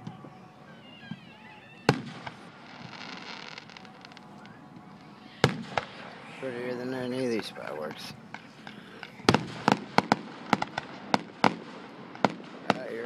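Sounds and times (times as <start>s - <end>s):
faint firework pops: 1.9s - 6.1s
firework shells bursting: 1.9s - 13.0s.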